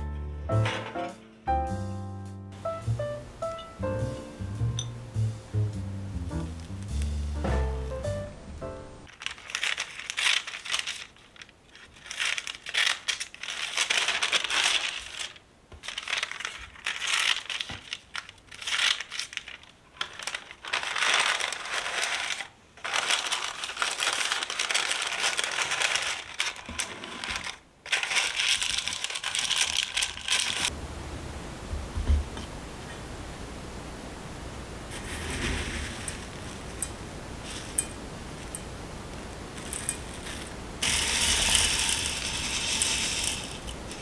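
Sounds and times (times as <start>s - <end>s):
baking paper crinkling: 9.1s - 30.7s, 34.9s - 38.6s, 39.2s - 44.0s.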